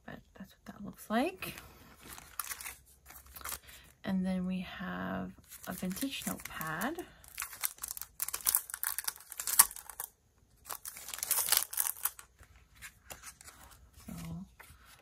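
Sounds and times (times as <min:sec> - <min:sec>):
cellophane sleeve crinkling: 0:02.0 - 0:03.7, 0:05.4 - 0:15.0.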